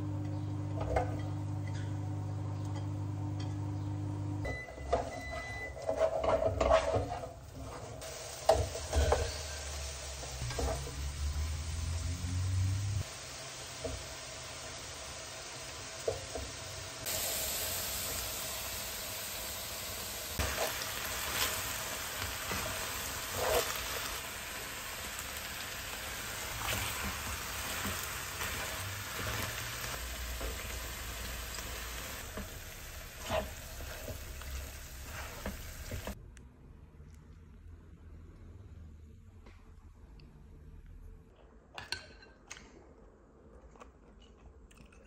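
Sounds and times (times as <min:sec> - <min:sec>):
food sizzling in a pan: 0:07.8 - 0:36.2.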